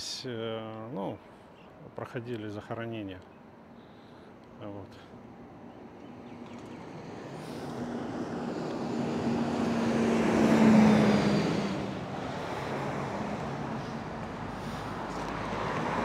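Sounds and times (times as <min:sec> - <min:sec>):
vehicle driving past: 0:06.1 - 0:16.0.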